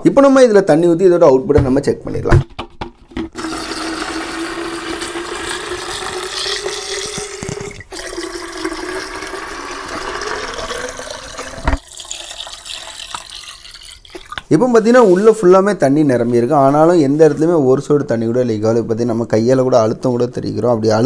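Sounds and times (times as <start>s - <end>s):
water pouring into plastic drum: 3.4s - 14.5s.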